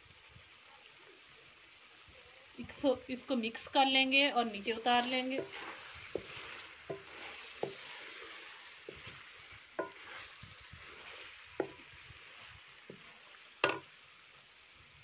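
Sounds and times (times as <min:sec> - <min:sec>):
curry sizzling in a pot: 0:00.0 - 0:15.0
spatula knocking against pot: 0:09.8 - 0:10.2, 0:11.6 - 0:11.8, 0:13.6 - 0:13.9.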